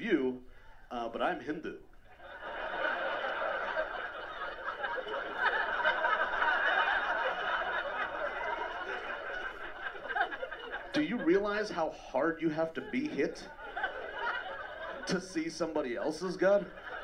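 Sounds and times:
audience laughing: 2.1 - 17.0.

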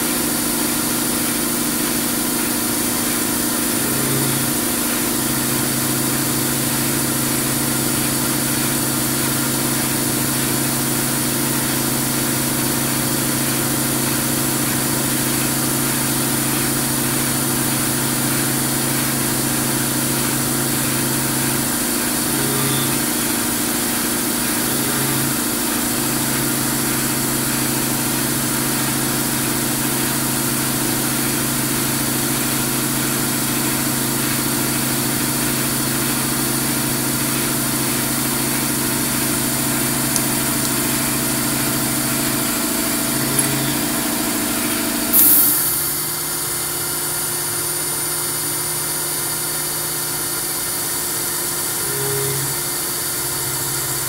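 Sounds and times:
milling machine hum and whine: 0.0 - 54.0
loud hiss: 38.8 - 46.7.

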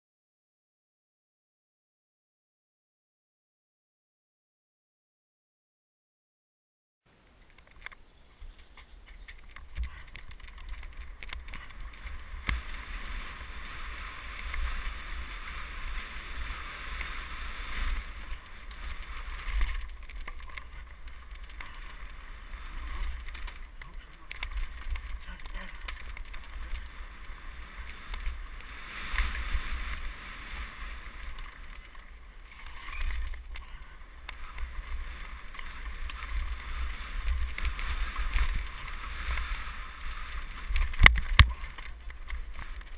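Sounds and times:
wind and tyre rumble: 7.1 - 42.9
bike knocks and rattles: 9.1 - 39.4.

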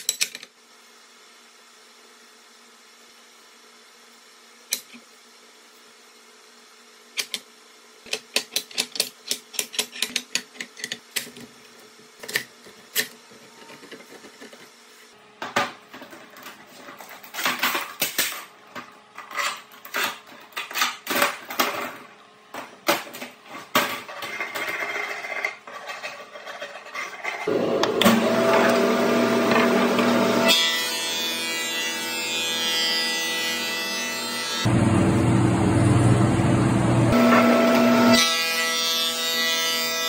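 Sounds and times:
clamps clicking and knocking: 8.1 - 11.4.

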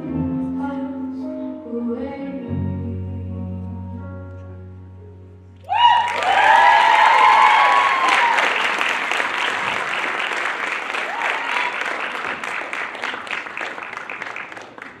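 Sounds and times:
audience applauding and cheering: 5.7 - 15.0.

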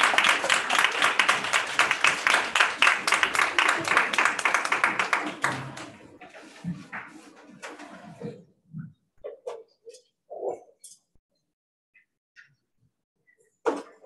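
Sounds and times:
audience applause: 0.0 - 6.1.

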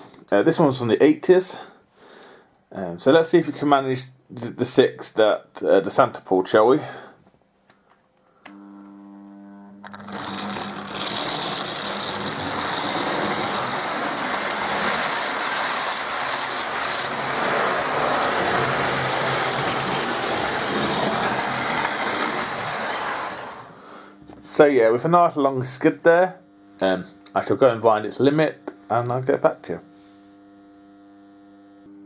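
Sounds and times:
model train motor hum: 9.8 - 23.8
model train rattling on rails: 9.9 - 23.7.

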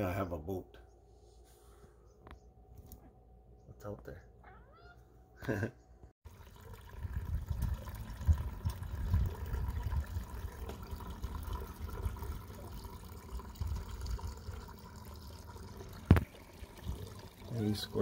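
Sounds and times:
rain dripping and trickling: 6.3 - 18.0.

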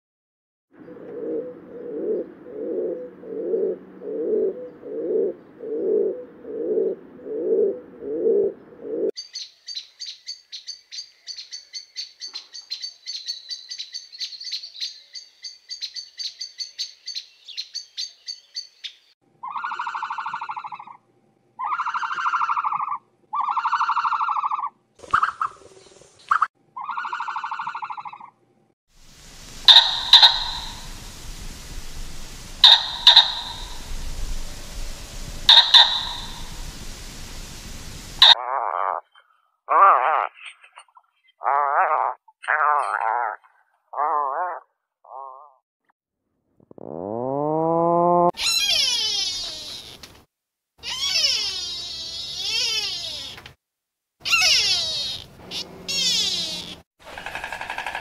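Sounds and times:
low rhythmic pulsing animal calls: 19.4 - 25.5, 29.1 - 39.2, 48.3 - 50.0, 54.2 - 58.0
long animal calls: 21.6 - 24.8, 26.8 - 28.3, 29.3 - 40.4, 46.7 - 50.1, 50.8 - 53.4, 54.2 - 58.0
fast high-pitched chirping: 29.6 - 38.4.

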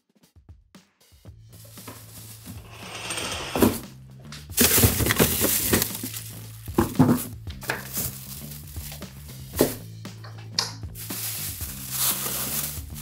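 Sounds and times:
plastic bags rustling: 1.6 - 3.8, 4.6 - 9.8, 10.9 - 13.0
containers clinking on fridge shelves: 2.6 - 3.8, 4.6 - 6.1.

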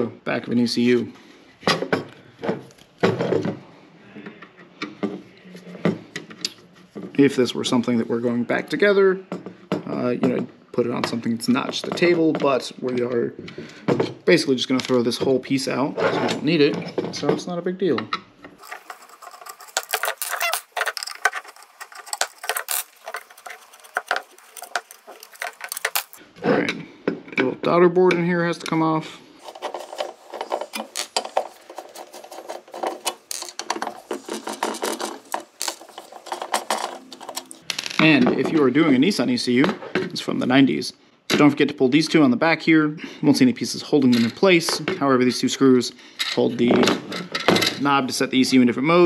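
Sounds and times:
clips and screws clicking and scraping: 18.6 - 26.2, 29.4 - 37.7.

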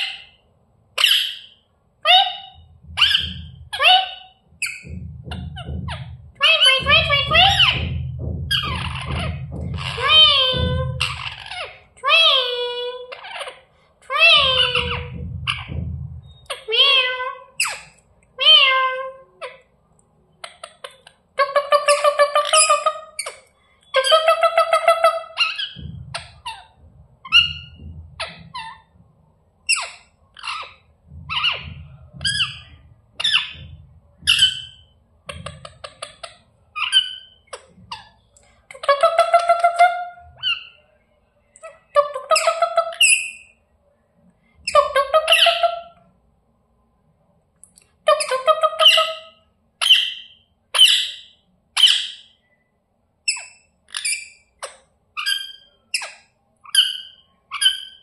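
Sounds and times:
parakeets squawking: 0.0 - 0.4, 1.0 - 19.6, 20.4 - 28.9, 29.7 - 40.8, 41.6 - 43.5, 44.7 - 45.9, 48.1 - 52.3
pulsed screeching bird calls: 1.0 - 12.4
low rumble: 2.1 - 13.2, 14.1 - 17.5, 24.2 - 37.0.

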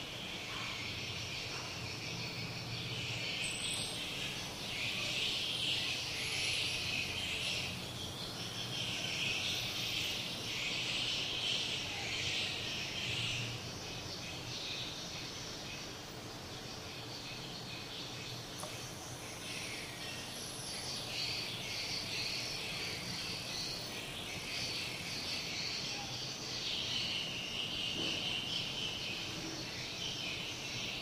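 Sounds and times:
birds chirping and twittering: 0.0 - 31.0.

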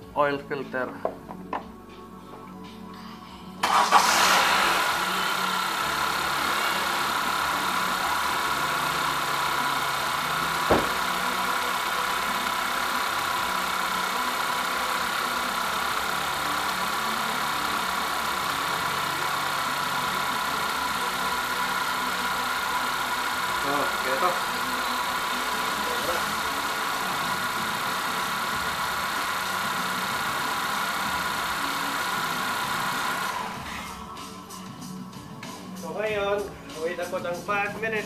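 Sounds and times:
car engine starting and idling: 3.6 - 36.0
sharp knock: 10.7 - 11.0.

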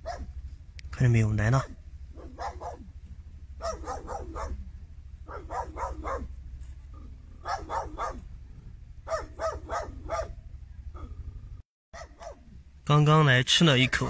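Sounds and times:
dog barking: 0.0 - 0.4, 1.5 - 2.9, 3.6 - 6.4, 7.0 - 8.3, 9.0 - 11.2, 12.0 - 12.5.

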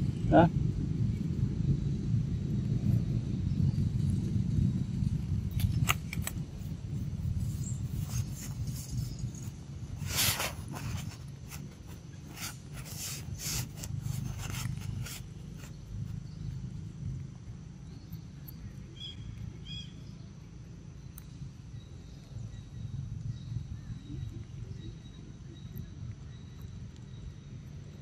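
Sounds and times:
low rumble: 0.0 - 18.1.

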